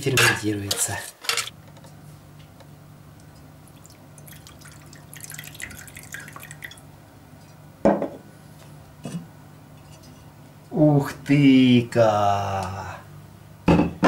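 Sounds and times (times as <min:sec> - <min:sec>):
liquid trickling into a cup: 0:03.6 - 0:06.9
glass bottle set down on counter: 0:07.9 - 0:08.2.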